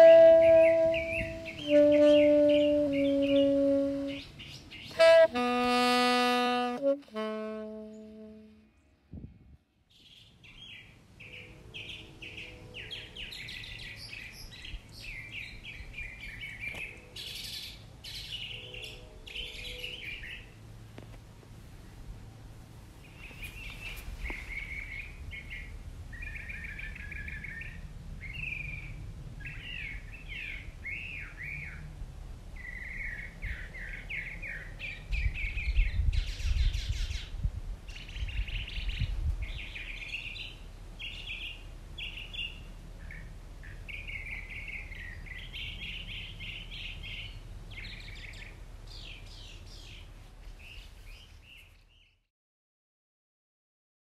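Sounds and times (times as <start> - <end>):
songbird warbling: 0.0 - 8.4.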